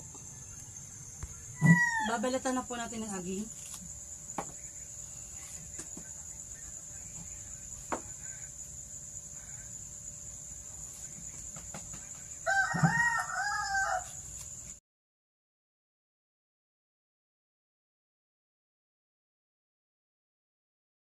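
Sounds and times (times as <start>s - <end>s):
rooster crowing: 1.6s - 2.3s, 12.4s - 14.2s.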